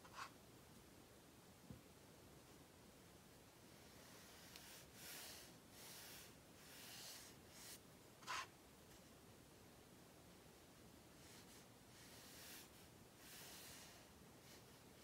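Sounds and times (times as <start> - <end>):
paintbrush swishing on paper: 11.2 - 14.8.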